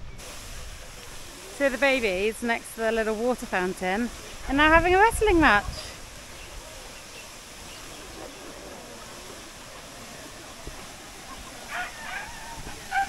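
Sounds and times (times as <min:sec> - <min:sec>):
water jetting from burst pipe: 0:00.0 - 0:13.0
faint distant voices: 0:05.5 - 0:13.0.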